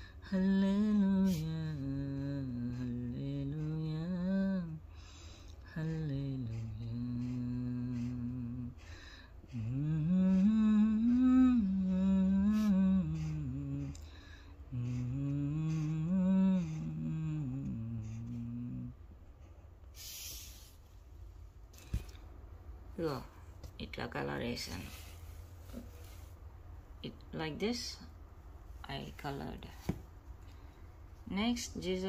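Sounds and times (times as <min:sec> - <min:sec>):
woman humming a melody: 0:00.0 - 0:04.9, 0:05.6 - 0:14.1, 0:14.7 - 0:19.0.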